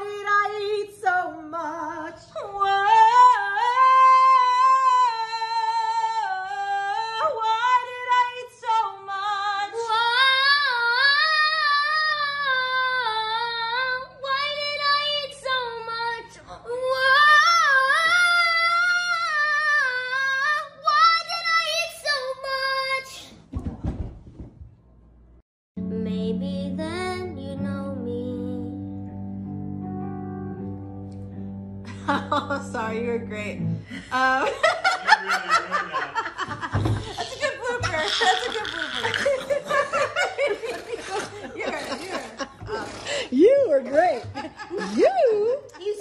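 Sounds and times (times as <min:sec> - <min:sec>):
woman laughing hard: 0:34.2 - 0:43.3, 0:43.9 - 0:46.0.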